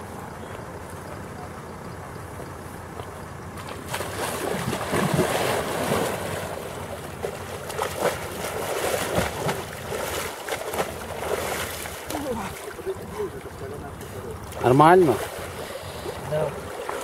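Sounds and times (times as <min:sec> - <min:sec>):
icy water splashing and sloshing: 0:03.0 - 0:17.0
big splash of person ducking under: 0:03.6 - 0:12.8.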